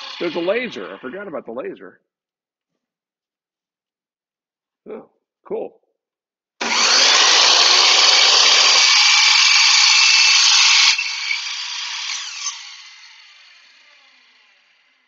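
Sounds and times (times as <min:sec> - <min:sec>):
miter saw cutting wood: 0:00.0 - 0:01.0, 0:06.6 - 0:15.0
saw blade winding down: 0:00.0 - 0:01.1, 0:06.6 - 0:15.0.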